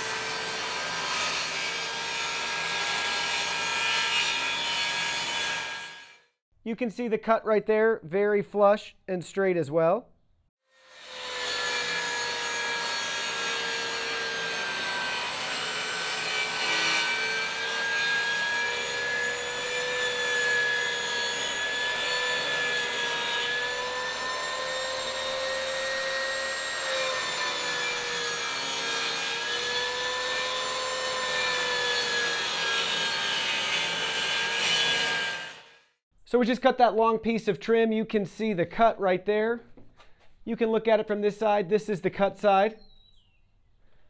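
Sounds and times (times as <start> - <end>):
table saw cutting wood: 0.0 - 6.3, 10.7 - 36.0.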